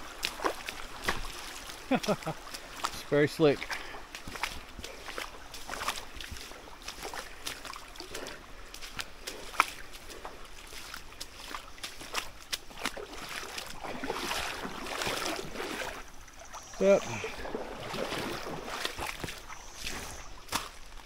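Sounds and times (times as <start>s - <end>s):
footsteps splashing through water: 0.0s - 21.0s
stream trickling: 0.0s - 21.0s.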